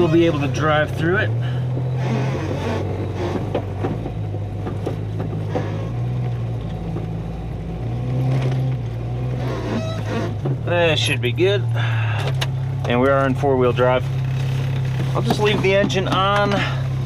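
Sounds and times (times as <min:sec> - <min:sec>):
tyres pushing through snow: 0:00.0 - 0:06.8, 0:12.9 - 0:17.0
car engine running under load: 0:00.0 - 0:17.0.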